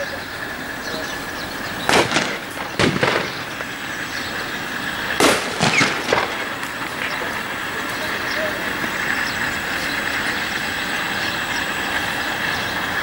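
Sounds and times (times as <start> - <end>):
distant jet engines roaring: 0.0 - 13.0
sharp bangs: 1.8 - 9.6.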